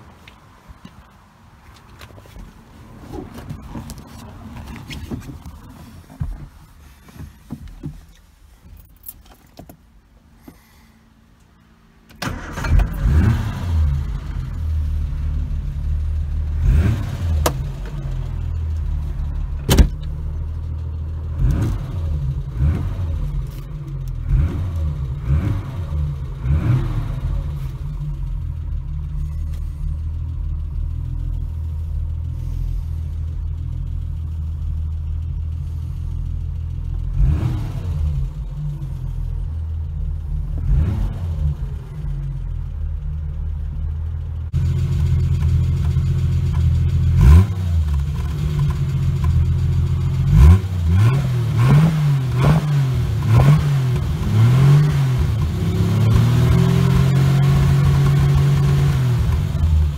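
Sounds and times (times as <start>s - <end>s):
car engine idling: 0.0s - 59.9s
car engine starting and revving: 12.1s - 59.9s.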